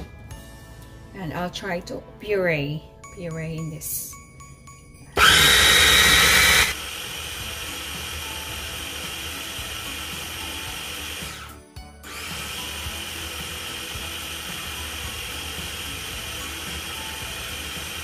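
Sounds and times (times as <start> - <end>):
food processor motor running: 5.2 - 18.0.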